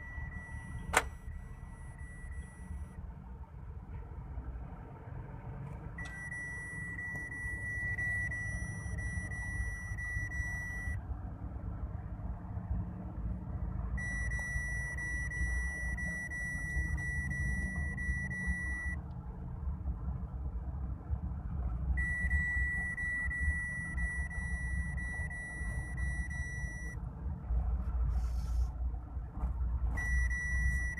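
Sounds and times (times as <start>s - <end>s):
high electronic beep tone: 0.0s - 3.0s, 6.0s - 11.0s, 14.0s - 19.0s, 22.0s - 27.0s, 30.0s - 30.9s
car road and engine rumble: 0.0s - 30.9s.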